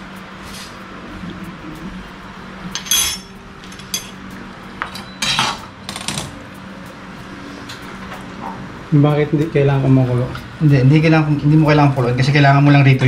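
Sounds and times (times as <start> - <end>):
steady low hum: 0.0 - 13.0
metal utensils clattering: 2.7 - 4.2, 4.9 - 6.3.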